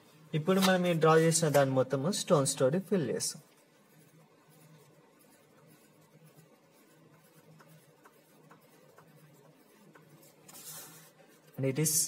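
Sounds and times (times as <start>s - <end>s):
pencil scratching on paper: 3.4s - 12.0s.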